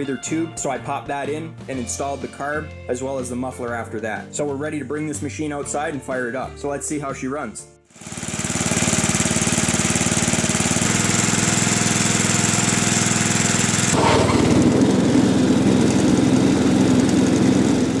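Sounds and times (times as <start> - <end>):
riding mower engine running: 7.9 - 18.0.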